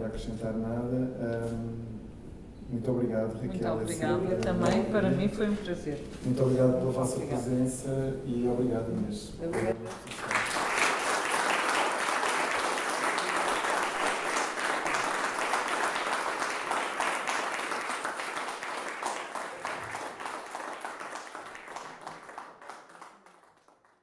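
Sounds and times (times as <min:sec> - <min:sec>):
audience applause: 0:09.7 - 0:24.0.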